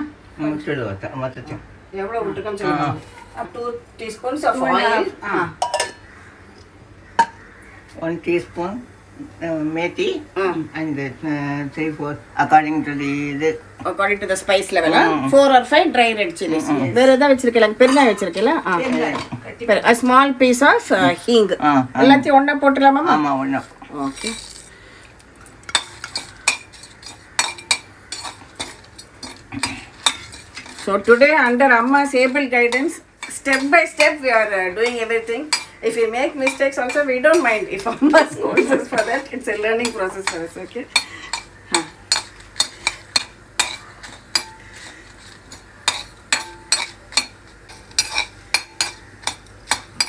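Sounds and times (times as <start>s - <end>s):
frying in oil: 2.5s - 50.0s
metal spoon scraping pan: 25.7s - 38.0s, 38.6s - 50.0s.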